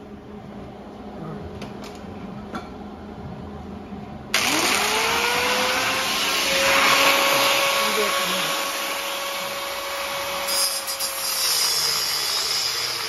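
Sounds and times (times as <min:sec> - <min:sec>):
angle grinder whirring: 0:04.4 - 0:13.0.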